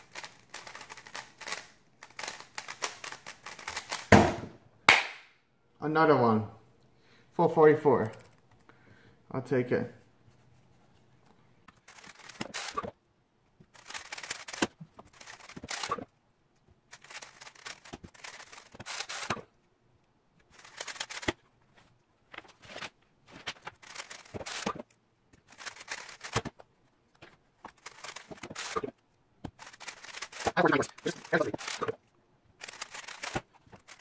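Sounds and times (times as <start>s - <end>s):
rapid plastic clicking of puzzle cube: 0.0s - 4.2s, 8.0s - 8.7s, 11.7s - 12.9s, 13.7s - 16.1s, 16.9s - 19.6s, 20.4s - 21.4s, 23.5s - 26.6s, 27.2s - 34.0s.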